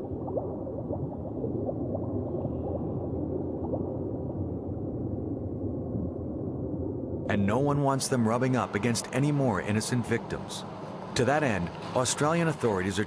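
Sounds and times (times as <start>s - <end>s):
bubbly chirps: 0.0s - 4.4s
underwater low rumble: 0.0s - 7.3s
water gurgling: 0.0s - 10.3s.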